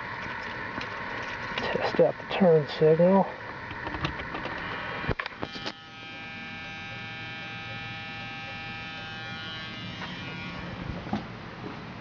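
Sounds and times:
warning buzzer: 4.6s - 10.9s.

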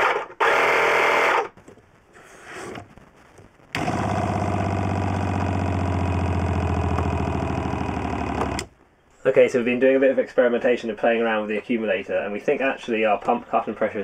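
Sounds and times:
tyre inflator running: 3.8s - 8.7s.

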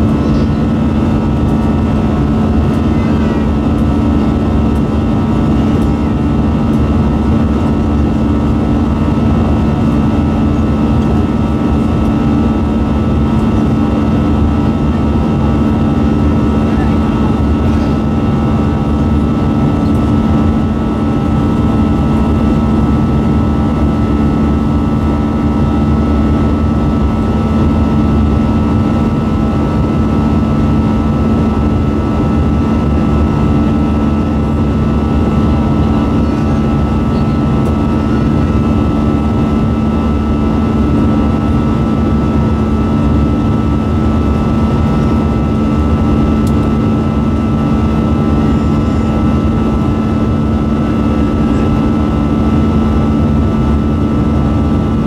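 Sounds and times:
airplane cabin air rush: 0.0s - 4.3s
low steady engine hum: 0.0s - 55.0s.

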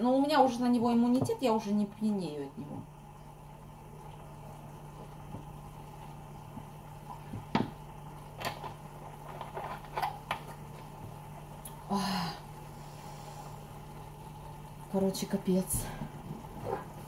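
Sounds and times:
steady low hum: 0.0s - 17.0s
plastic clicks and crinkles: 8.3s - 10.9s.

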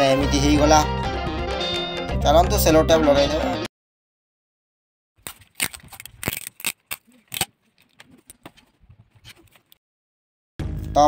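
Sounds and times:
adhesive tape crackling: 5.2s - 8.4s.

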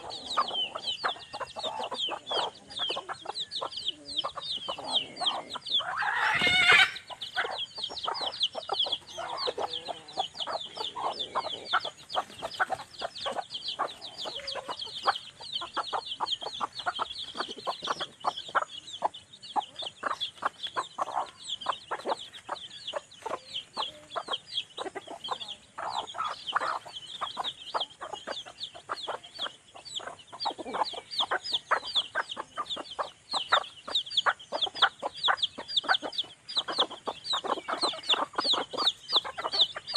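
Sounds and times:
chicks peeping: 0.0s - 39.9s
hen clucking: 0.0s - 39.9s
loud rising squawk: 5.8s - 7.1s.

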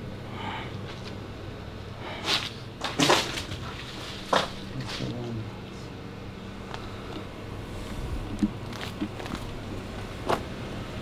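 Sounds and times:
footsteps on stone rubble: 8.4s - 9.6s.

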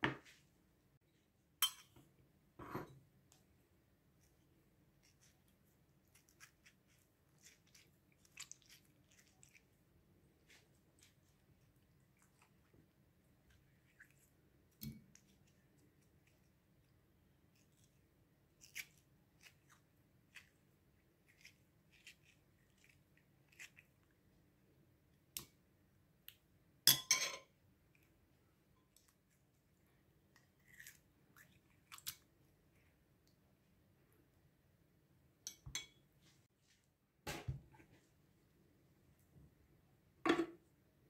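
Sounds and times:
spoon clattering on ceramic dish: 1.6s - 2.0s, 26.9s - 27.5s
spoon clicking and scraping: 1.6s - 2.0s.

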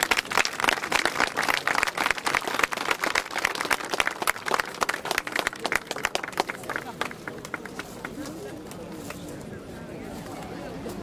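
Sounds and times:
small crowd applauding: 0.0s - 8.4s.

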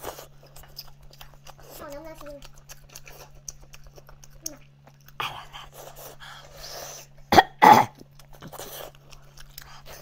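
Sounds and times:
man coughing: 7.3s - 8.0s.

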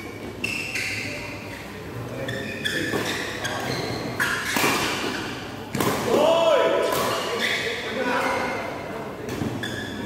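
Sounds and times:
shoes squeaking on court: 0.0s - 5.8s, 7.0s - 7.9s, 9.2s - 10.0s.

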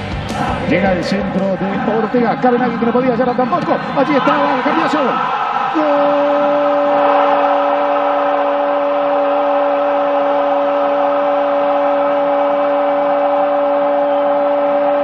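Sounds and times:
stadium crowd roaring: 0.0s - 15.0s
commentator's long drawn-out cry: 3.8s - 15.0s.

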